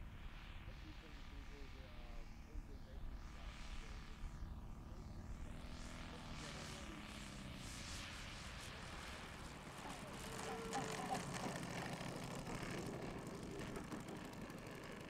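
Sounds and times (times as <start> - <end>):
model plane engine idling: 0.8 - 15.0.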